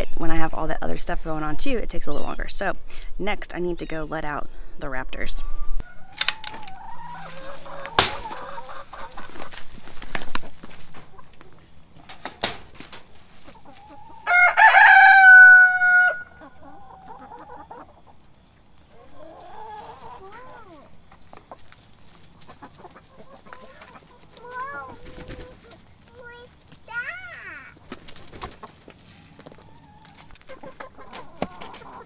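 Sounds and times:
hens calling: 4.8 - 32.0
rooster crowing: 14.2 - 16.4.

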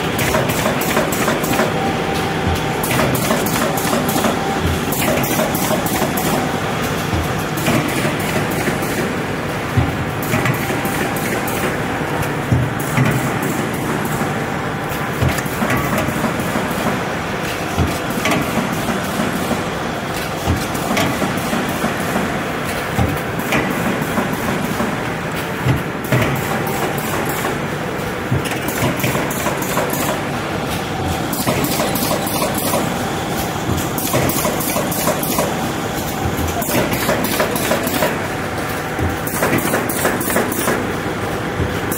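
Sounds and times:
machine knocks and clacks: 0.0 - 41.9
machine mechanical din: 0.0 - 41.9.

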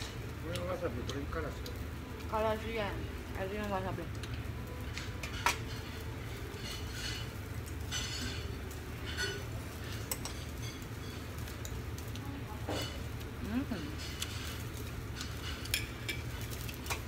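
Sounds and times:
utensils clinking on plates: 4.2 - 17.0.

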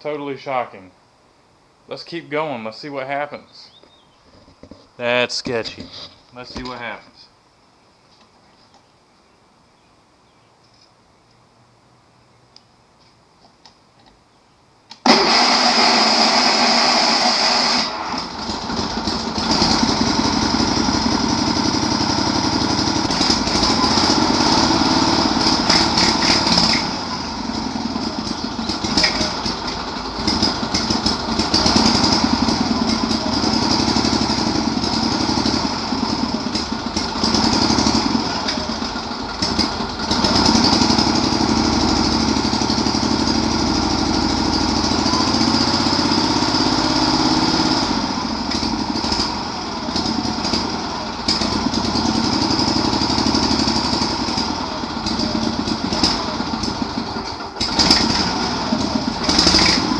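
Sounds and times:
lawn mower engine running unevenly: 15.0 - 59.9.

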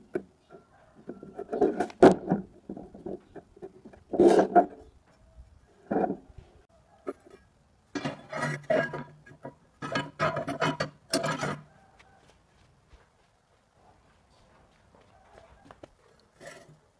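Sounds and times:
steel bar scraping on metal table: 3.9 - 4.9, 7.9 - 11.7, 16.4 - 16.9.

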